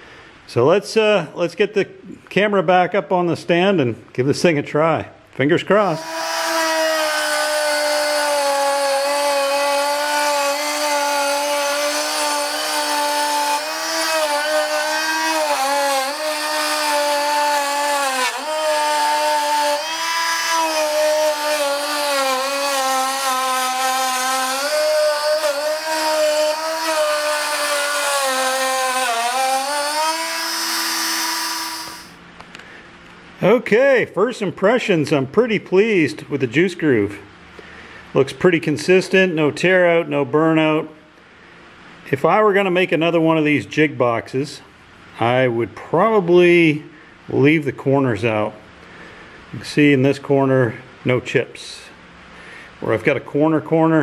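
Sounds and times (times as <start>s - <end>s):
router motor whine cutting wood: 5.8s - 32.2s.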